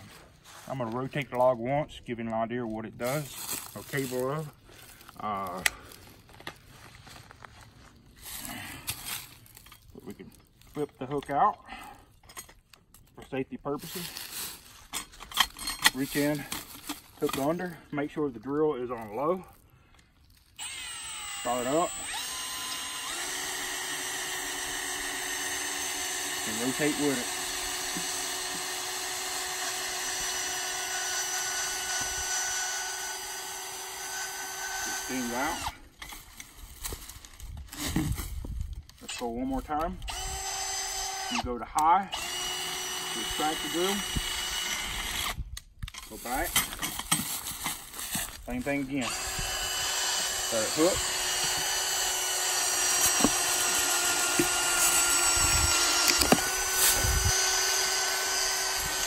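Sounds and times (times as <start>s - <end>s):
cordless drill whining: 20.3s - 36.5s, 39.0s - 59.0s.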